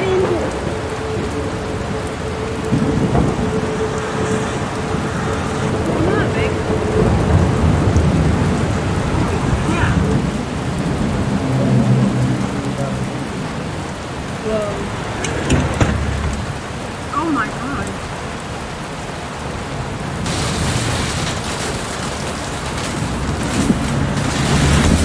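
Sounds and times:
wind and heavy rain: 0:00.0 - 0:25.0.

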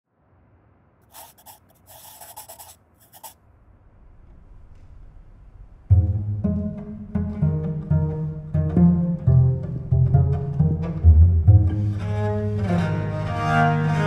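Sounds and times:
soft rustling and scratching: 0:01.1 - 0:03.4.

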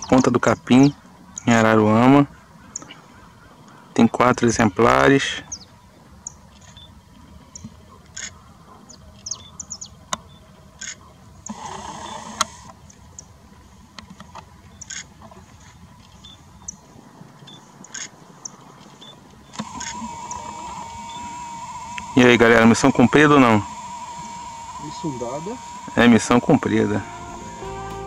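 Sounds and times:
faint outdoor background noise: 0:00.0 - 0:28.0
small birds chirping: 0:00.0 - 0:28.0
sharp clicks: 0:19.5 - 0:28.0.

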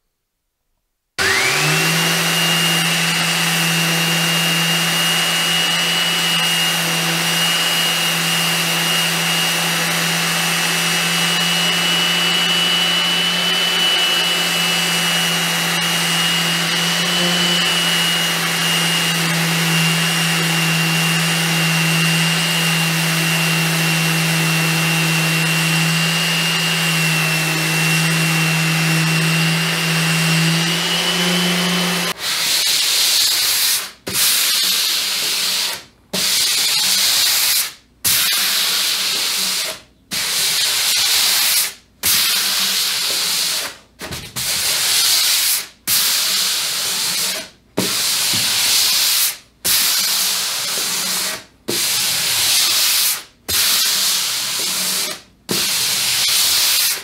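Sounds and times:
orbit sander running: 0:01.2 - 0:32.2.

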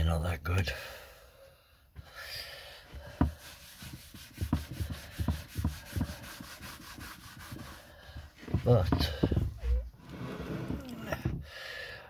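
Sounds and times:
pad rubbing on wood: 0:02.8 - 0:10.9.

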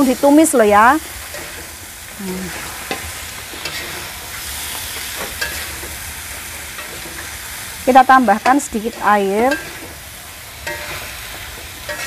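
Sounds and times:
food sizzling in a wok: 0:00.0 - 0:12.0
metal spatula scraping pan: 0:02.5 - 0:12.0.

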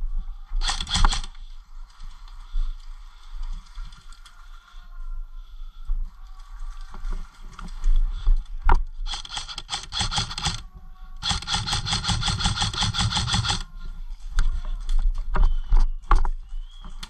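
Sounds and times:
airsoft gun full-auto bursts: 0:00.6 - 0:01.3, 0:09.1 - 0:10.6, 0:11.2 - 0:13.7.

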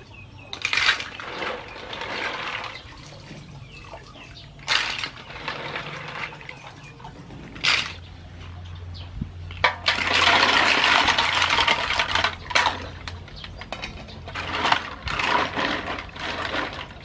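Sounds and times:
shells clattering in metal basin: 0:00.5 - 0:03.8, 0:04.6 - 0:08.1, 0:09.5 - 0:17.0
water sloshing: 0:00.5 - 0:17.0
water splashing: 0:00.8 - 0:09.0.

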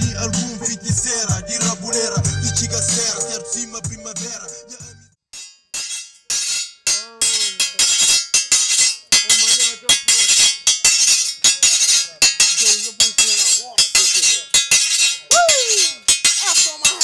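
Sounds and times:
metallic strike beat: 0:00.0 - 0:17.0
voice fragments: 0:15.3 - 0:17.0.

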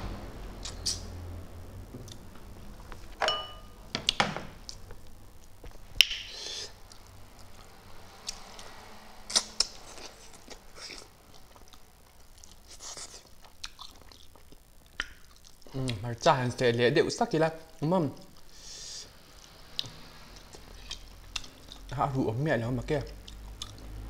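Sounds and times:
dishware clinking on table: 0:03.2 - 0:03.7
mouth clicks and smacks: 0:09.3 - 0:11.8, 0:12.4 - 0:16.0, 0:23.1 - 0:23.9.

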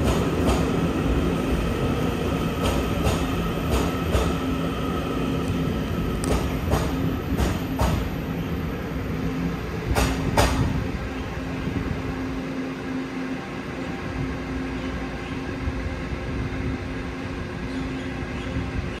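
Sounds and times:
train wheels clacking over rail joints: 0:00.0 - 0:00.8, 0:02.5 - 0:04.5, 0:06.2 - 0:08.2, 0:09.9 - 0:10.7
train rumble and hum: 0:00.0 - 0:19.0.

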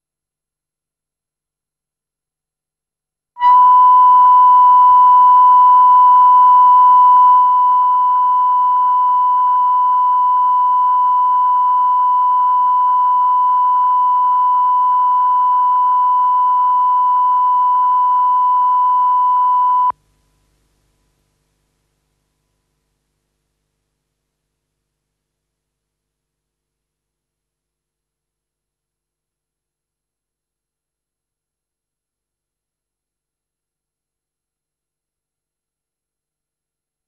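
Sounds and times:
steady test tone: 0:03.4 - 0:19.9.

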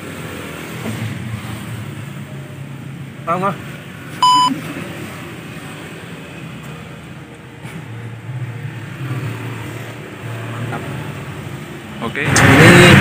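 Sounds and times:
passing vehicle engines hum: 0:00.0 - 0:13.0
electronic test-tone beep: 0:04.2 - 0:04.6.

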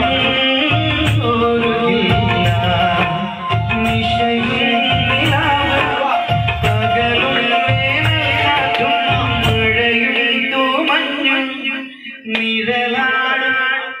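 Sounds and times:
electronic keyboard: 0:00.0 - 0:12.3
man singing into a microphone: 0:00.0 - 0:14.0
bass and drum beat: 0:00.8 - 0:09.9.

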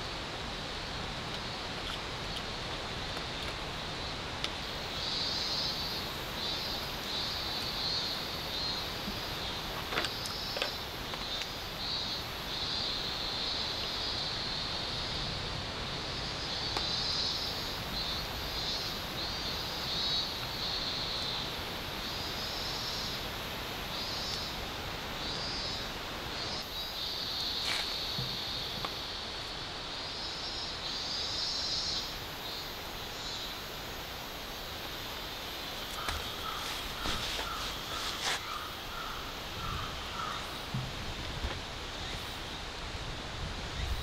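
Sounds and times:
steady outdoor hiss: 0:00.0 - 0:44.0
insects shrilling: 0:33.2 - 0:40.5.

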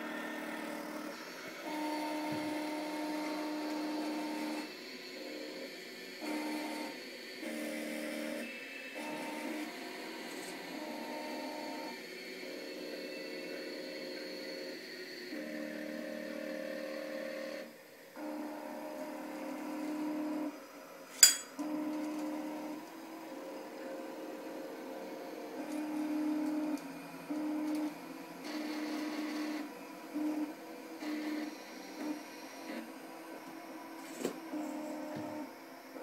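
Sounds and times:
robot arm motors whining: 0:25.6 - 0:35.5.

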